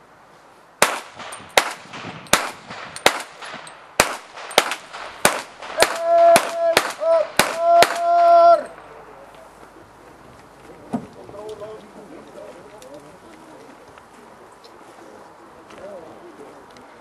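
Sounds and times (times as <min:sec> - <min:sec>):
handgun shots: 0:00.8 - 0:08.1.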